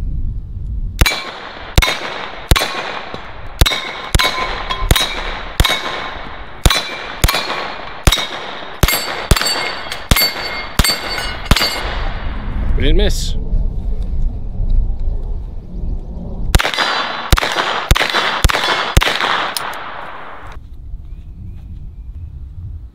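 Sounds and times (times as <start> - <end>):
rifle shots: 1.0 - 12.2, 16.5 - 20.6
steel plate ringing clang: 3.6 - 12.0.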